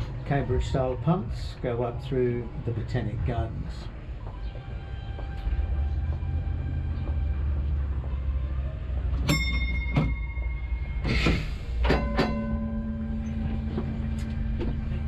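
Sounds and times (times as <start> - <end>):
tram low rumble: 0.0 - 15.0
steady hum: 10.2 - 15.0
high steady tone: 11.8 - 15.0.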